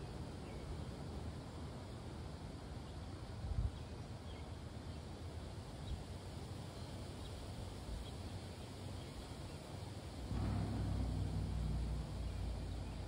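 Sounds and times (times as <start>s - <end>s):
low rumble: 10.2s - 13.0s
bump: 10.3s - 13.0s.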